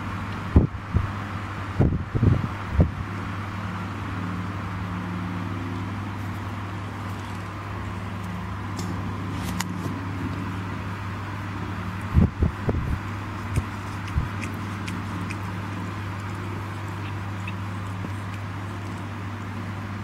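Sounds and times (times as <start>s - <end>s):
cat purring: 13.0s - 19.3s.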